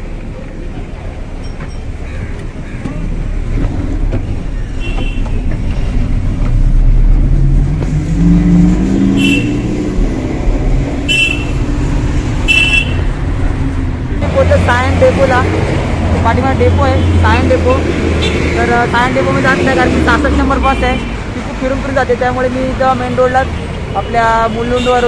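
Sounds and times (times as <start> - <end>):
traffic engine rumble: 0.0 - 25.0
vehicle engine accelerating: 5.4 - 20.6.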